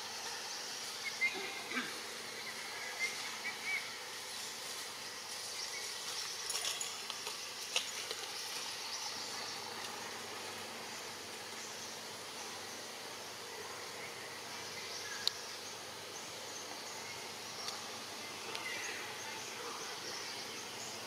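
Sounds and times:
outdoor background hiss: 0:00.0 - 0:21.0.

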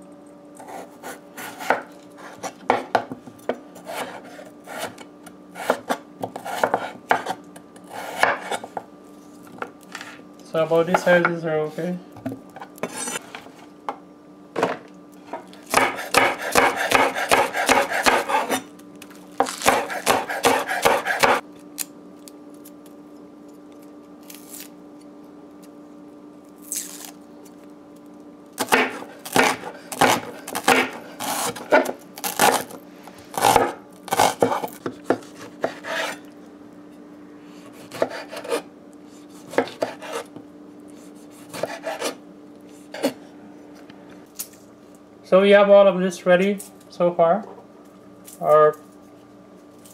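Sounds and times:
faint steady hum: 0:00.0 - 0:49.9
knife chopping on wooden board: 0:00.6 - 0:05.0, 0:05.6 - 0:07.4, 0:08.0 - 0:08.8, 0:15.7 - 0:18.6, 0:19.4 - 0:21.4, 0:28.6 - 0:32.7, 0:33.4 - 0:36.2, 0:37.8 - 0:38.6, 0:39.4 - 0:40.3, 0:41.2 - 0:42.2.

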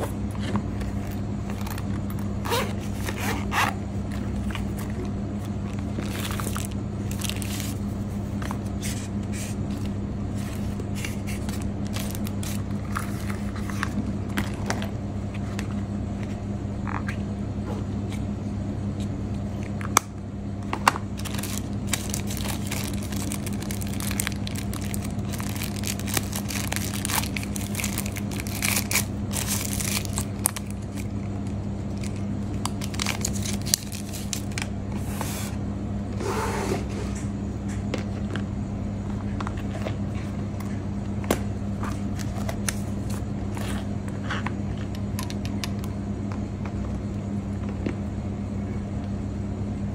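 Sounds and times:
steady low hum: 0:00.0 - 0:49.9
paper and plastic rustling: 0:04.1 - 0:15.7, 0:21.2 - 0:35.5
packaging clicks: 0:21.2 - 0:34.7.

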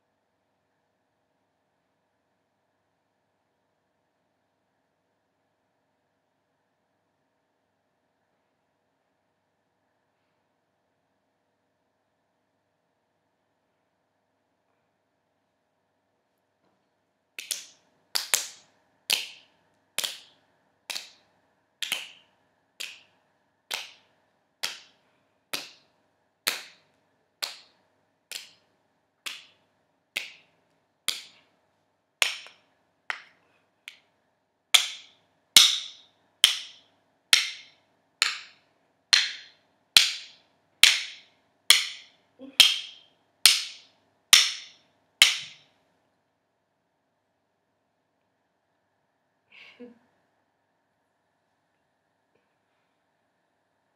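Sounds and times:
wooden spoons knocking: 0:34.8 - 0:45.6.

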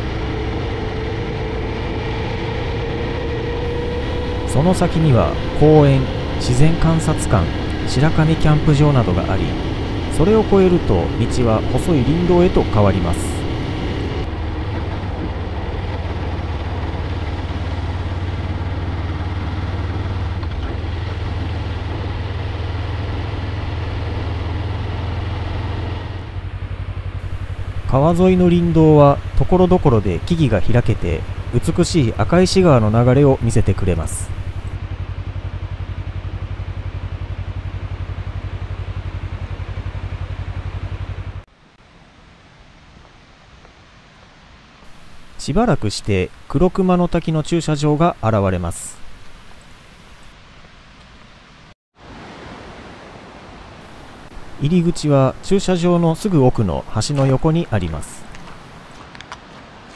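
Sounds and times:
car engine drone: 0:00.0 - 0:42.4, 0:44.9 - 0:46.8, 0:47.8 - 0:50.3, 0:53.8 - 0:59.0
tyre and road noise: 0:00.0 - 0:46.6, 0:48.9 - 0:59.9
outdoor hiss: 0:27.2 - 0:34.8, 0:41.5 - 0:59.9.

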